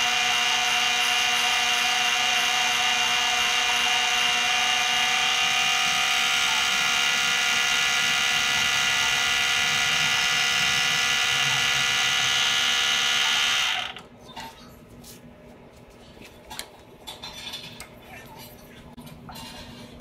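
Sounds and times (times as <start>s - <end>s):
lathe motor whining: 0.0s - 14.0s
lathe spinning down: 0.0s - 14.0s.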